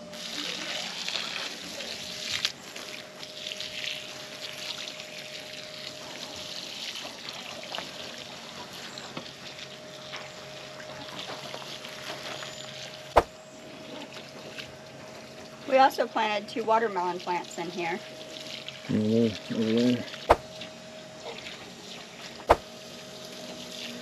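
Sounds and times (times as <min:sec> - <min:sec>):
hose water splashing onto soil: 0:00.2 - 0:02.5, 0:03.2 - 0:08.5.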